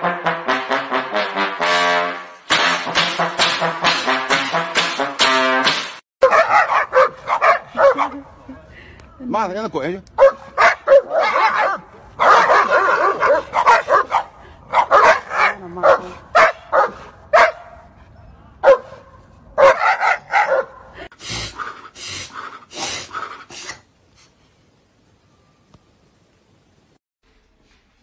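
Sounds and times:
dog barking and yelping: 6.2s - 8.3s, 10.2s - 17.8s, 18.6s - 20.8s.

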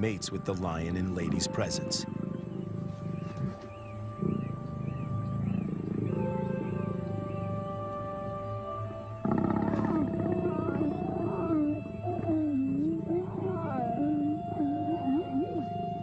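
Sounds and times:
soft background music: 0.0s - 16.0s
lions growling and snarling: 2.0s - 7.8s, 9.2s - 14.4s.

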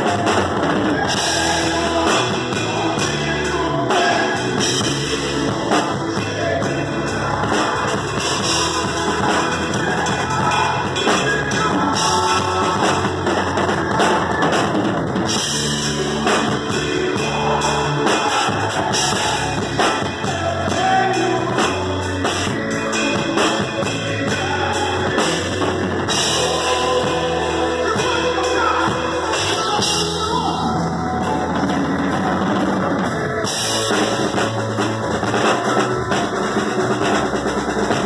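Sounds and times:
drum kit playing: 0.0s - 38.0s
guitar and bass: 0.0s - 38.0s.

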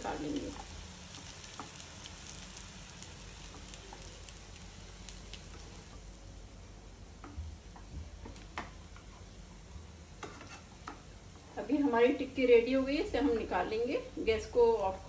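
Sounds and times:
patties sizzling in oil: 0.0s - 6.5s.

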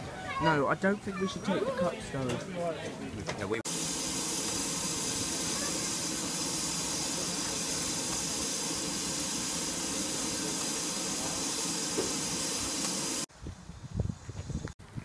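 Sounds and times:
steam hissing from locomotive: 3.7s - 13.3s.

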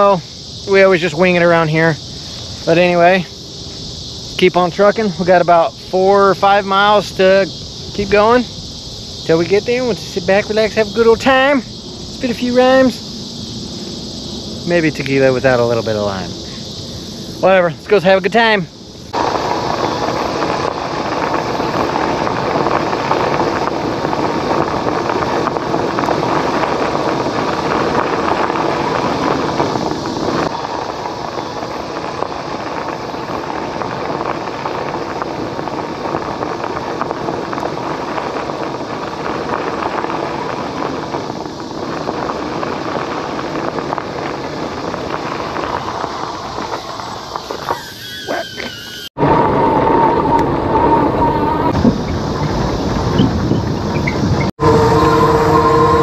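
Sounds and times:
rushing noise: 0.0s - 56.0s
short squeal: 45.6s - 56.0s.

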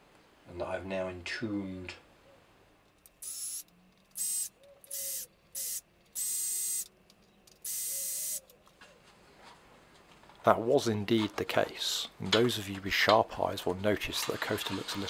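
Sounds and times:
cordless drill running: 3.2s - 6.9s, 7.6s - 8.4s.

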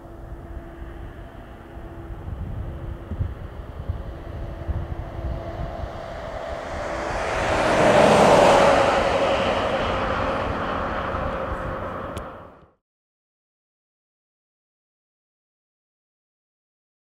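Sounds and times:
military jet passing by: 0.0s - 12.6s.

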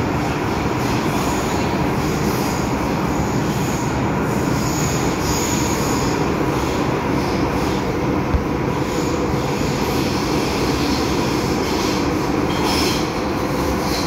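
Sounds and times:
train wheels rumbling on rail: 0.0s - 14.0s
high-pitched wheel squeal: 9.0s - 13.2s.

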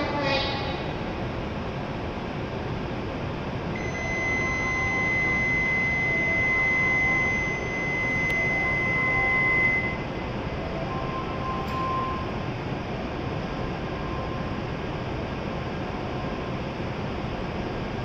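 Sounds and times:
standing train humming: 0.0s - 18.0s
high electronic signal tone: 3.8s - 12.3s.

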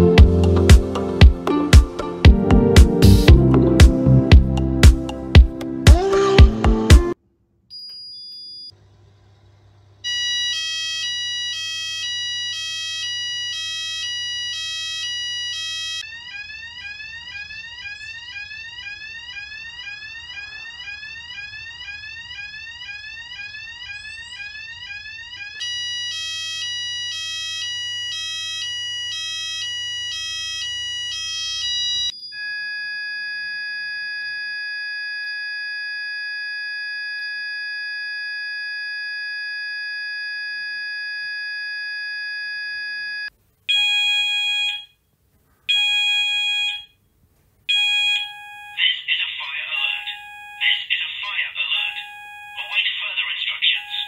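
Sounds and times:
alarm steady continuous tone: 10.0s - 45.0s, 47.7s - 54.0s
alarm alternating two-tone pattern: 10.1s - 32.6s, 43.7s - 44.9s, 45.7s - 46.9s, 47.7s - 54.0s
fire alarm rising sweep tone: 10.1s - 44.9s, 45.7s - 46.9s, 47.7s - 54.0s
alarm pulsed beeps: 15.9s - 27.0s, 47.7s - 54.0s.

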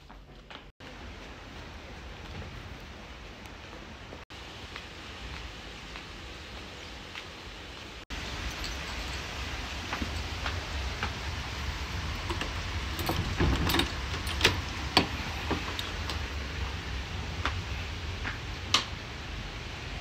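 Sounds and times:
lock and latch clicking: 12.2s - 16.2s
keys jangling: 12.3s - 14.8s.

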